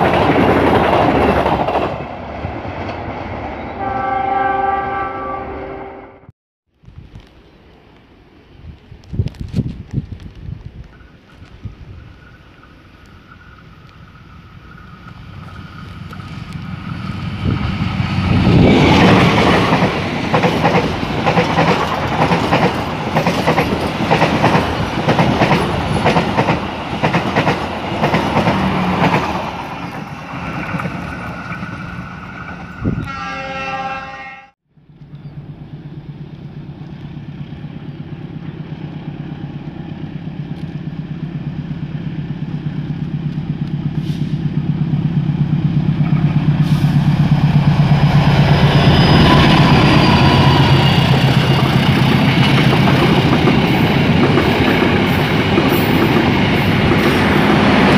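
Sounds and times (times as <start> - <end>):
diesel locomotive engine hum: 7.0 - 57.9
train wheels clicking over rail joints: 14.9 - 31.9, 42.2 - 57.9.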